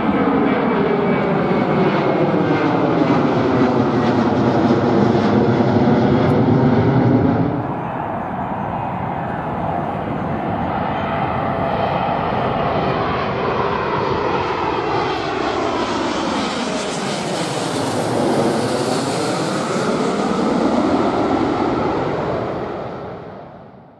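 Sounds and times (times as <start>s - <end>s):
jet aircraft rumble and whine: 0.0s - 23.9s.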